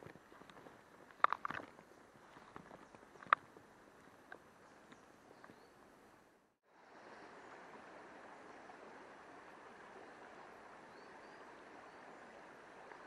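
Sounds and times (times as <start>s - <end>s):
river flowing over stones: 6.7s - 13.0s.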